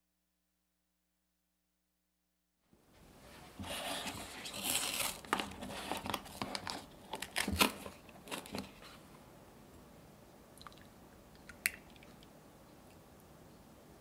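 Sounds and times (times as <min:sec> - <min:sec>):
paper carton crinkling and tearing: 0:03.6 - 0:09.0
sharp snaps: 0:10.6 - 0:12.3.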